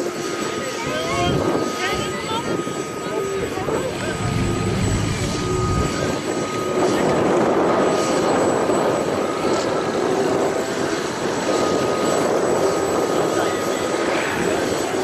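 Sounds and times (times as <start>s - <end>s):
helicopter engines and rotors running: 0.0s - 15.0s
faint steady whine: 2.6s - 6.7s.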